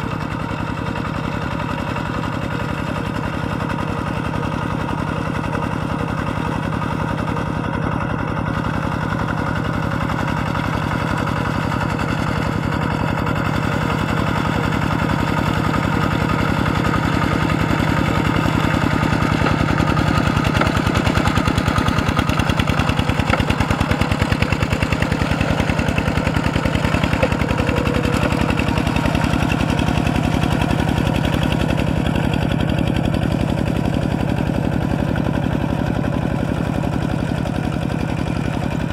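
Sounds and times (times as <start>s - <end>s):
diesel engine chugging: 0.0s - 38.9s.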